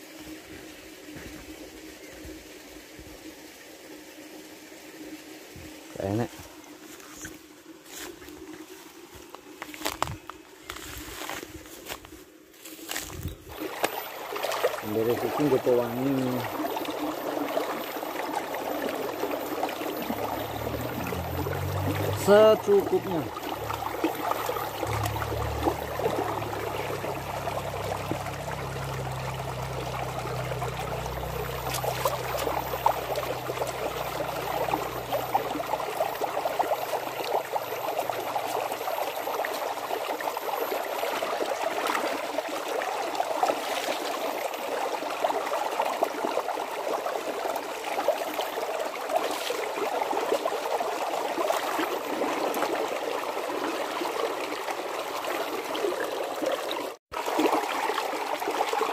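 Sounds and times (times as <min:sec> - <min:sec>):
stream water trickling: 0:00.0 - 0:58.9
low rumble: 0:20.0 - 0:38.4.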